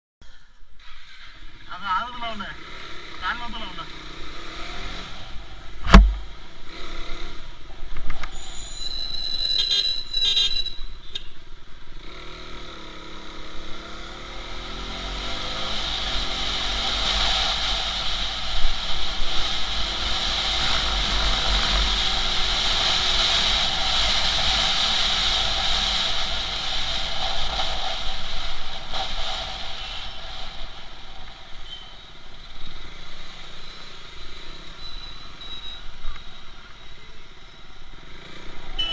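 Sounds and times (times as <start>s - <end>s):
motorcycle engine revving: 2.5s - 7.6s, 11.9s - 36.4s
sharp thump: 5.8s - 6.3s
wind and wet tyre noise: 10.3s - 38.9s.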